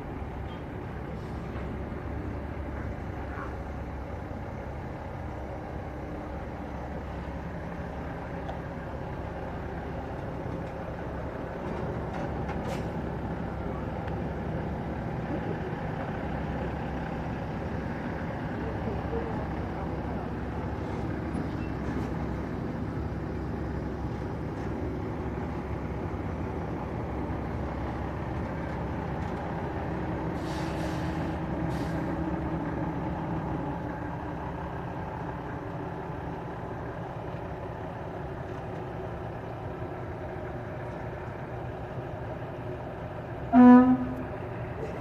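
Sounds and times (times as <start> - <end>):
truck diesel engine running: 0.0 - 45.0
air brake hiss: 30.4 - 32.2
truck horn toot: 43.5 - 44.4.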